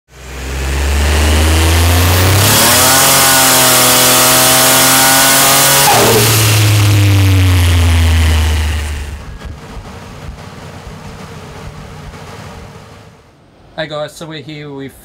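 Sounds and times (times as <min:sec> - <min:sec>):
car engine revving: 0:00.1 - 0:13.4
turbo and exhaust rush: 0:00.1 - 0:13.7.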